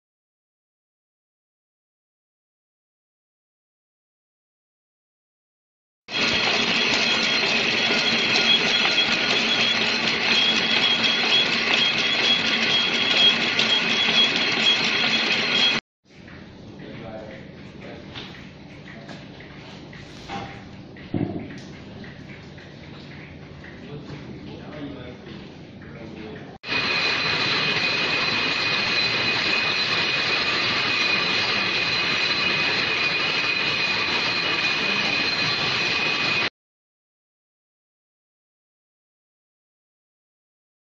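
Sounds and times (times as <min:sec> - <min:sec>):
factory machinery din: 0:06.1 - 0:15.8, 0:26.6 - 0:36.5
high steady whine: 0:06.1 - 0:15.8, 0:26.6 - 0:36.5
machine clattering: 0:06.1 - 0:15.8.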